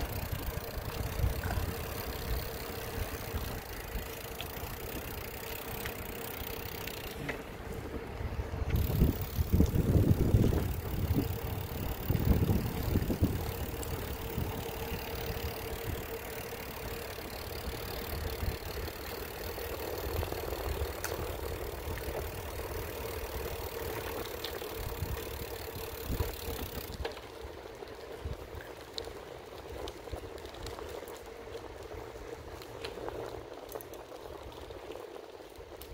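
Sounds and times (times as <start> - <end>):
wind buffeting microphone: 0.0 - 5.2, 7.1 - 16.9
vehicle rumbling: 0.0 - 35.9.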